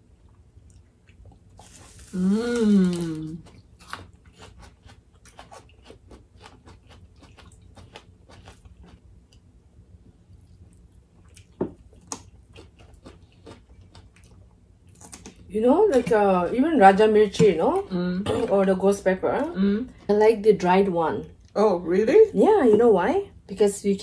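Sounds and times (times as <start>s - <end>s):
chewing and crunching food: 0.0s - 16.8s.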